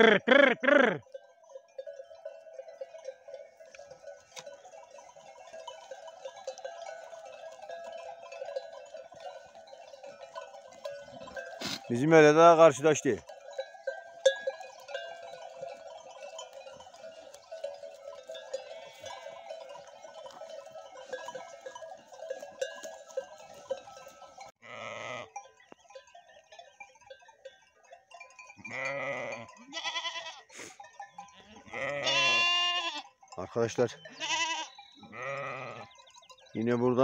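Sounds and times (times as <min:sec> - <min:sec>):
livestock bells jingling: 0:00.0 - 0:37.0
animals bleating: 0:14.8 - 0:25.4, 0:28.6 - 0:33.2, 0:33.8 - 0:36.0.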